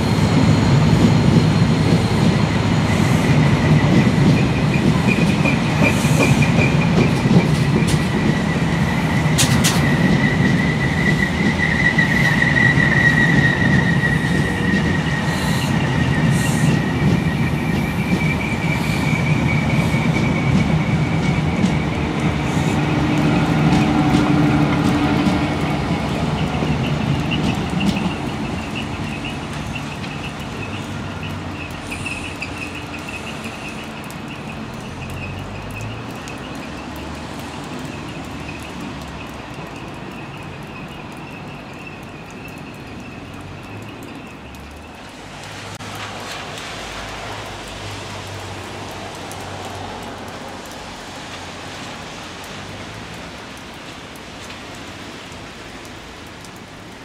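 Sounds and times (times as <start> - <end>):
train wheel squeal: 0.0 - 36.7
train rumble: 0.0 - 57.0.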